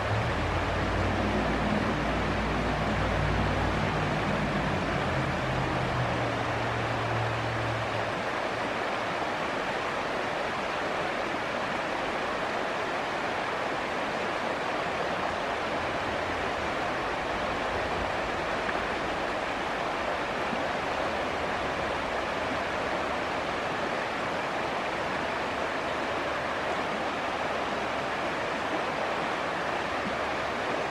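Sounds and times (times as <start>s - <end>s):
river rushing over rocks: 0.0s - 30.9s.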